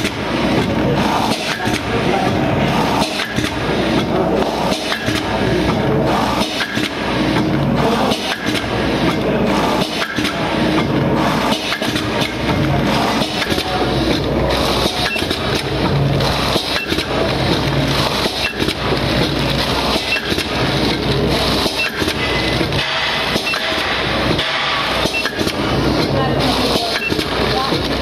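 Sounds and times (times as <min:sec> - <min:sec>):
machine clicks and knocks: 0:00.0 - 0:28.0.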